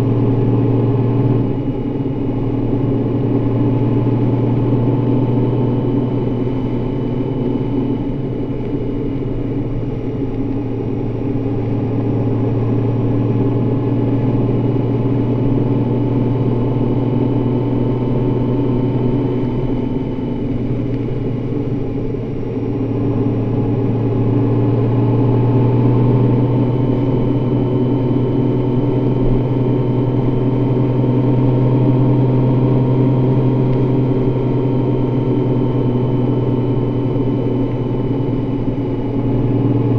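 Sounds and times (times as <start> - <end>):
motorcycle engine cruising: 9.3 - 39.9.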